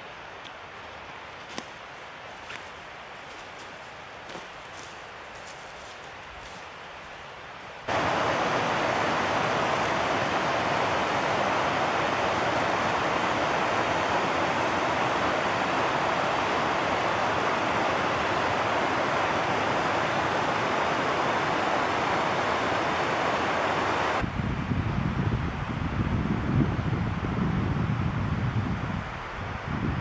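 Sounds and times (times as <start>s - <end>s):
stream rushing over rocks: 7.8s - 24.2s.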